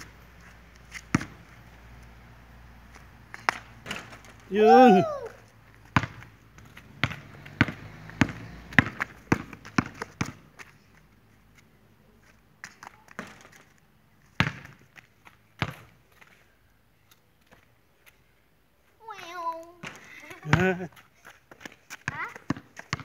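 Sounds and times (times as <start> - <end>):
basketball bouncing on concrete: 0.9 - 1.4, 3.3 - 4.4, 5.8 - 10.7, 12.7 - 13.6, 14.4 - 14.9, 15.6 - 15.9, 19.8 - 23.0.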